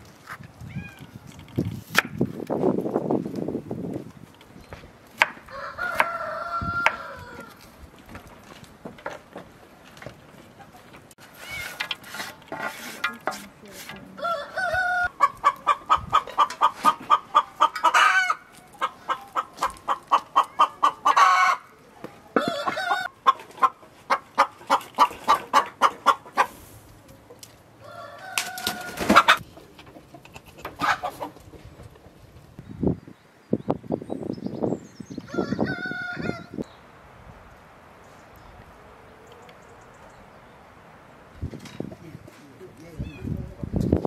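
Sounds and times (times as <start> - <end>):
hen clucking: 14.0 - 21.8, 22.4 - 31.9.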